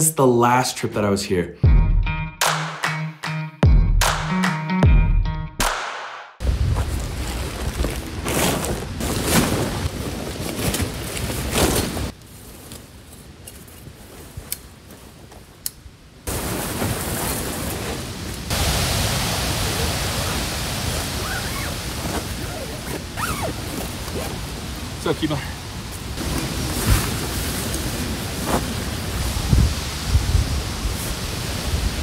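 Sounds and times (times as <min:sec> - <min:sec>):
tent fabric rustling: 0:06.4 - 0:15.6, 0:16.2 - 0:18.6, 0:19.8 - 0:29.7
tent poles clicking: 0:10.4 - 0:15.9
wind buffeting microphone: 0:26.2 - 0:32.0.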